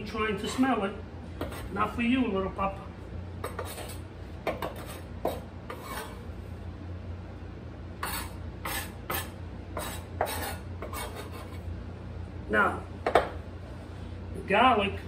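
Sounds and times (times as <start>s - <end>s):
low steady hum: 0.0s - 15.0s
knife chopping on cutting board: 3.4s - 6.2s, 8.0s - 11.6s.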